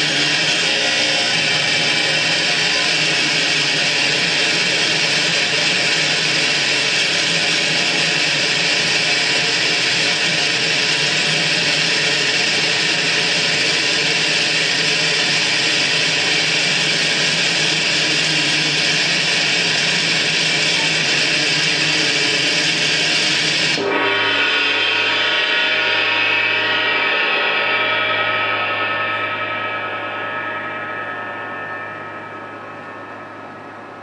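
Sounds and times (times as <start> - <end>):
harsh hissing noise music: 0.0 - 34.0
faint held tones: 27.6 - 34.0.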